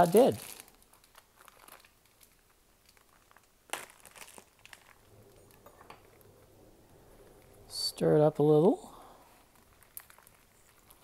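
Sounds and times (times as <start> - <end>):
foil and plastic bag crinkling: 0.0 - 6.4, 9.0 - 11.0.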